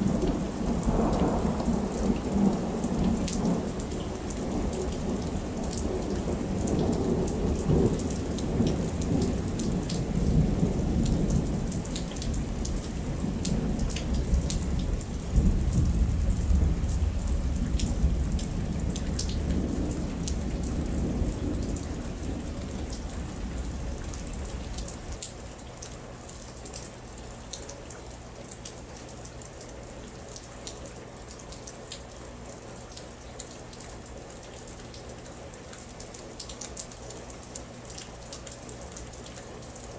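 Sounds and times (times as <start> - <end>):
rolling thunder: 0.0 - 25.1
steady rain: 0.0 - 39.9.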